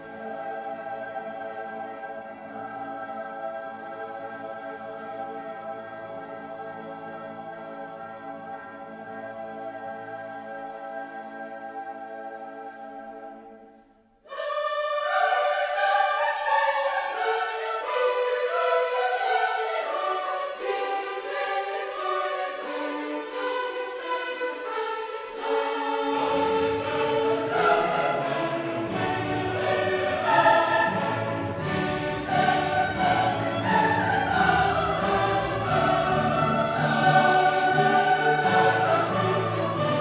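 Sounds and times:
choir singing: 0.0 - 40.0
orchestral music: 0.0 - 40.0.

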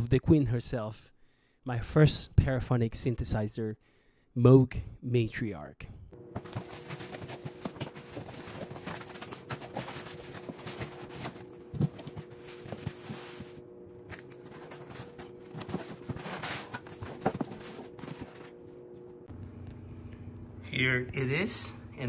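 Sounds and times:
faint steady hum: 6.0 - 22.0
cardboard flaps rustling: 6.3 - 18.6.

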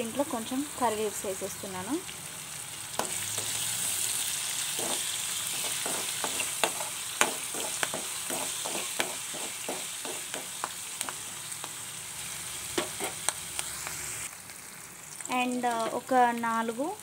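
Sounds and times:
vegetables sizzling in hot oil: 0.0 - 17.0
spatula scraping metal pan: 4.8 - 10.4.

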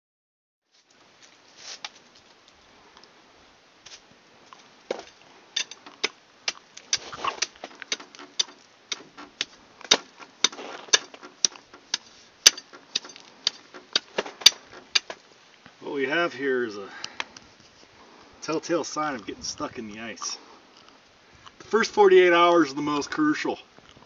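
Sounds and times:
hand tool chipping at ice: 5.6 - 15.2.

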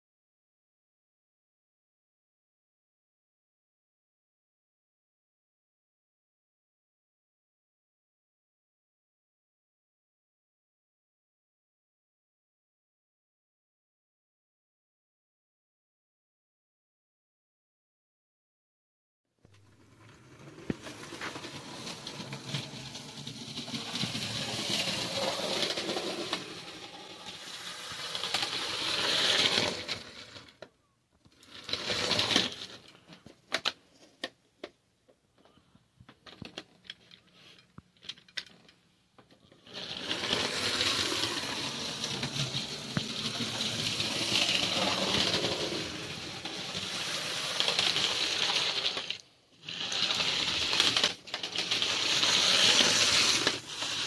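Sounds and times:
toy train motor whirring: 20.0 - 30.7, 31.4 - 33.0, 39.4 - 54.0.

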